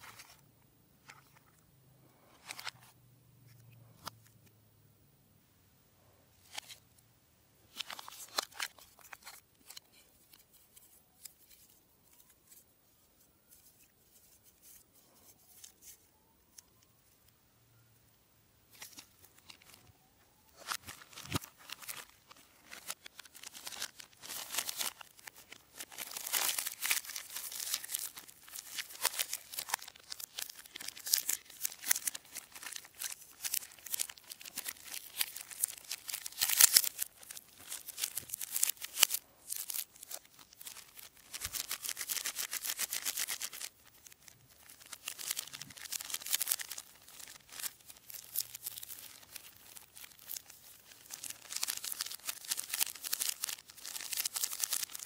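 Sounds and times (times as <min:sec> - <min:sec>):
plastic wrappers crinkling: 0:07.7 - 0:12.6, 0:18.7 - 0:55.0.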